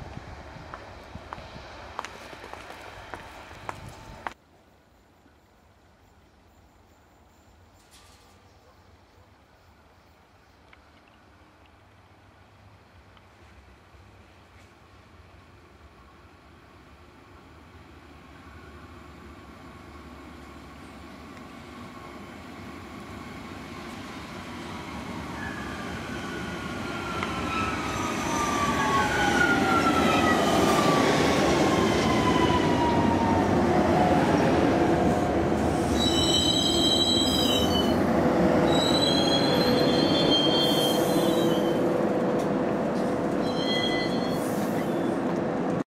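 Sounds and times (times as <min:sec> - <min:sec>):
train running noise: 0:00.0 - 0:04.4, 0:13.4 - 0:45.8
train brakes squealing: 0:25.3 - 0:30.7, 0:35.7 - 0:38.0, 0:38.6 - 0:41.9, 0:43.4 - 0:45.2.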